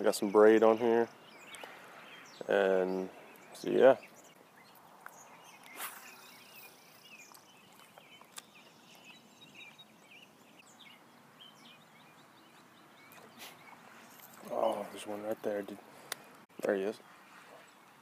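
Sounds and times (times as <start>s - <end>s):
bird chirps: 0.0s - 16.4s
light sharp ticks: 4.7s - 5.8s.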